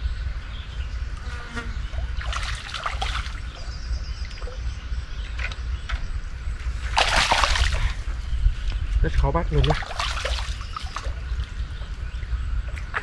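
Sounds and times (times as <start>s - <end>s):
water splashing and dripping: 2.0s - 4.6s, 6.8s - 8.2s, 9.5s - 11.9s, 12.6s - 13.0s.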